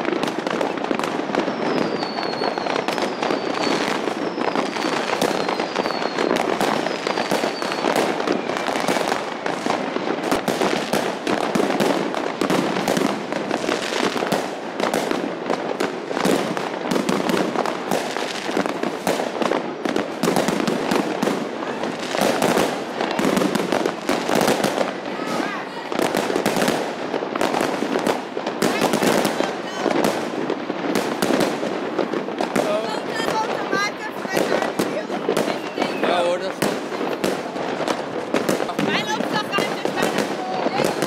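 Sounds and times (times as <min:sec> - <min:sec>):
fireworks crackling and banging: 0:00.0 - 0:41.0
falling firework whistles: 0:00.6 - 0:09.6, 0:34.4 - 0:36.6.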